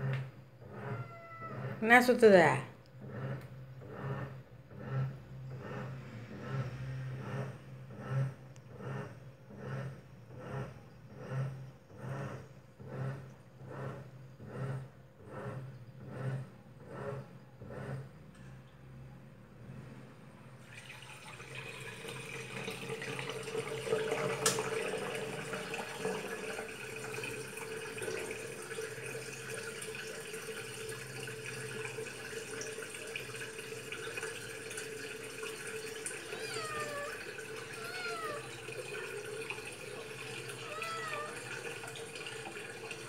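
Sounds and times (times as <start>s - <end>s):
water trickling from tap: 20.6s - 43.0s.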